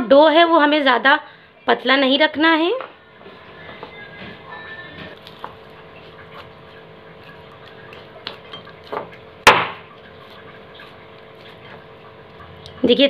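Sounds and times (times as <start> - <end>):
hands kneading dough: 3.2 - 13.0.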